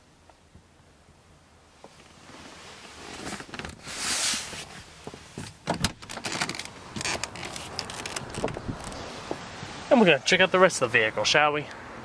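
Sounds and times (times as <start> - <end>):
hand brushing leather upholstery: 2.2 - 5.5
car door clicks and knocks: 5.4 - 9.4.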